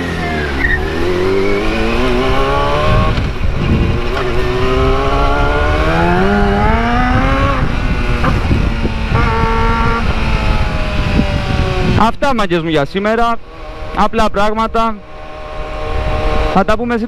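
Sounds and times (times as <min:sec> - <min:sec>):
motorcycle engine accelerating: 0:00.0 - 0:12.3, 0:13.0 - 0:16.9
wind noise on microphone: 0:00.9 - 0:17.0.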